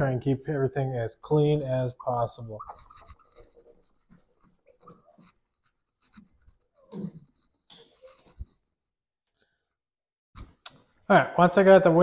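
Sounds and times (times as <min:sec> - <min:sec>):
cloth rubbing on glass: 0:01.8 - 0:08.8.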